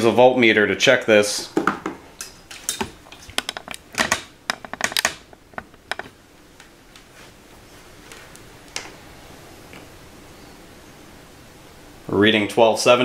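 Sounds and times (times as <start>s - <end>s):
multimeter clicks and knocks on wood: 2.7s - 6.2s.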